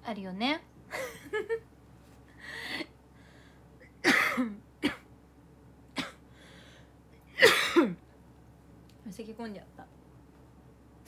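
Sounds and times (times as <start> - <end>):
woman coughing: 3.9 - 5.1, 6.0 - 6.2, 7.4 - 8.0.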